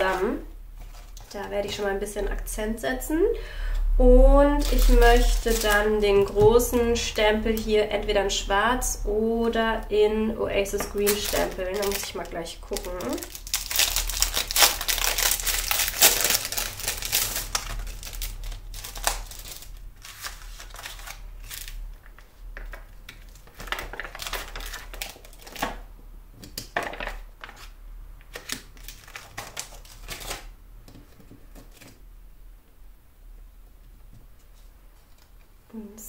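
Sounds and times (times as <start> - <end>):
plastic packaging crinkling: 0.0 - 2.4, 4.6 - 6.8, 10.5 - 25.9, 26.8 - 30.5.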